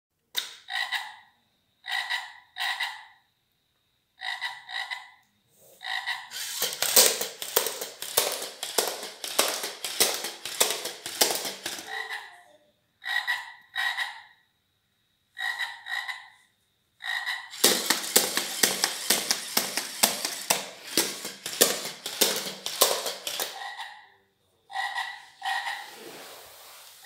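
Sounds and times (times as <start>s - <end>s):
frog croak from speaker: 0.6s - 3.3s, 4.2s - 5.2s, 5.8s - 6.3s, 13.0s - 14.4s, 15.3s - 16.4s, 17.0s - 17.5s, 24.7s - 25.9s
plastic legs knocking on wood: 6.3s - 11.9s, 17.5s - 23.6s
motors clattering: 6.3s - 12.1s, 17.5s - 23.8s.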